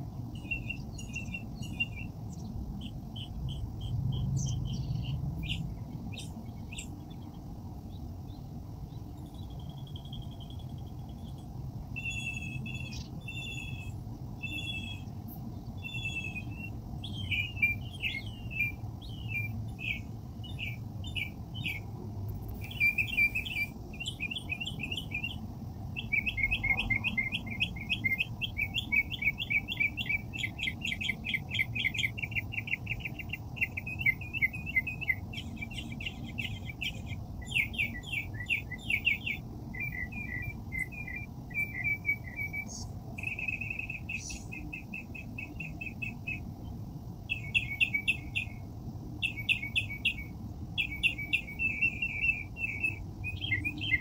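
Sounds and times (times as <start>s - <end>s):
low background rumble: 0.0s - 38.6s
songbird chirping: 0.0s - 54.0s.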